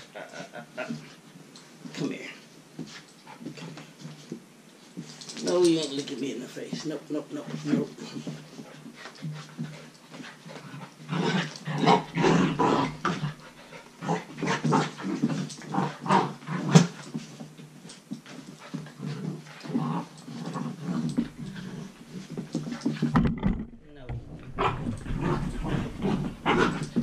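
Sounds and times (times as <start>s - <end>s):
puppies play-growling and yipping: 8.3s - 23.1s, 24.4s - 27.0s.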